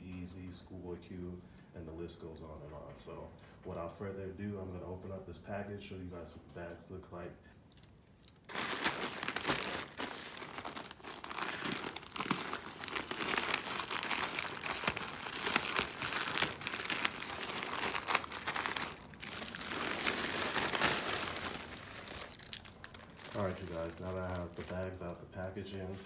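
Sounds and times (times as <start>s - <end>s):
plastic crinkling: 8.1s - 26.0s.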